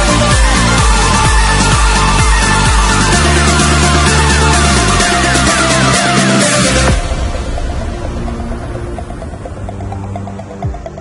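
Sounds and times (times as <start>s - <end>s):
soft ambient music: 3.8s - 11.0s.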